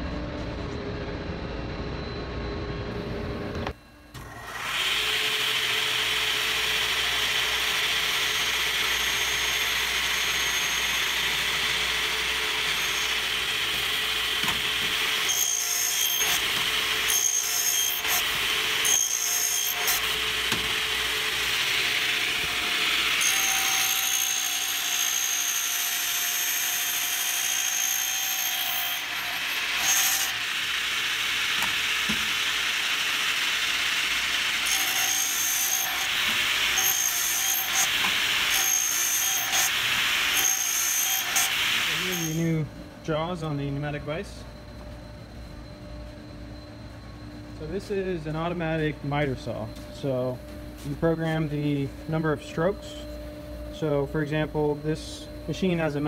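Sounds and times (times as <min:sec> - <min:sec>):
miter saw cutting pipe: 0:04.2 - 0:42.6.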